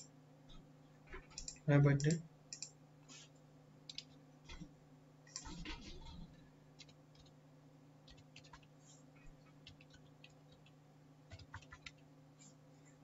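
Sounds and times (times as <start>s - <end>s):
low steady hum: 0.0s - 13.0s
keyboard keys clicking: 8.1s - 8.7s, 9.6s - 10.7s, 11.3s - 12.0s.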